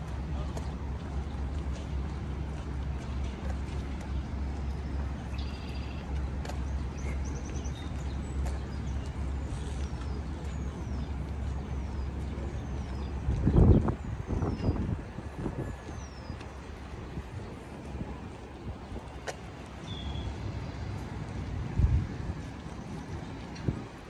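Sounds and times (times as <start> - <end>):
passing vehicles rumble: 0.0 - 24.0.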